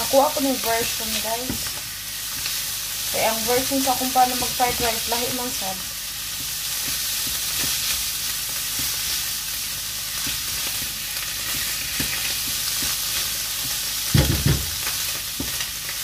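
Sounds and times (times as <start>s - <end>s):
vegetables sizzling in frying pan: 0.0s - 16.0s
spatula tapping and scraping pan: 6.3s - 8.0s, 10.2s - 14.4s
loud knocks: 14.1s - 14.8s.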